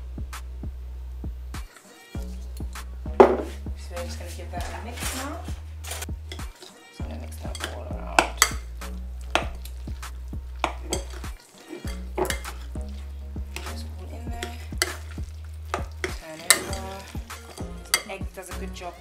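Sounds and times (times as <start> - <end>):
squelching scrapes of wet mixture: 1.6 - 19.0
utensil clinking against glass bowl: 6.3 - 8.7, 9.3 - 9.7, 10.6 - 18.6.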